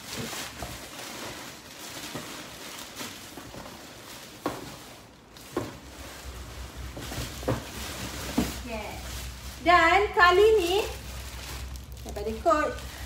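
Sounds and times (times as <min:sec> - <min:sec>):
packing wrap rustling: 0:00.0 - 0:13.0.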